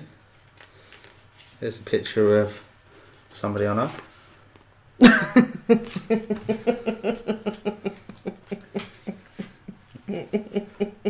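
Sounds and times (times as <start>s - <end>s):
woman giggling: 5.0s - 11.0s.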